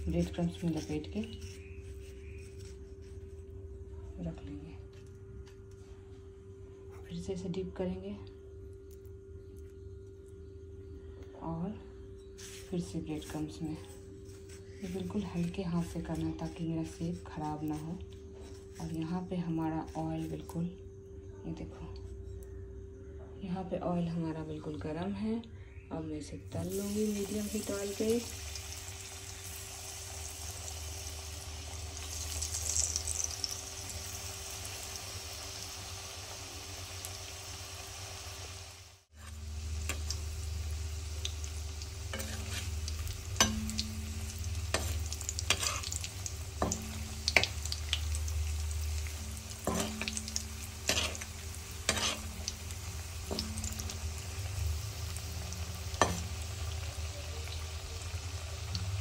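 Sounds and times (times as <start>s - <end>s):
oil sizzling deep-frying: 0.0s - 3.3s, 12.4s - 19.2s, 26.5s - 59.0s
spatula scraping metal pan: 42.1s - 47.6s, 49.1s - 54.0s.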